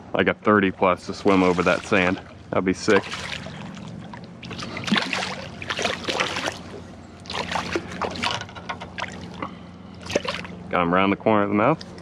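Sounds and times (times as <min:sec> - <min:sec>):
fish splashing at surface: 0:01.1 - 0:10.6.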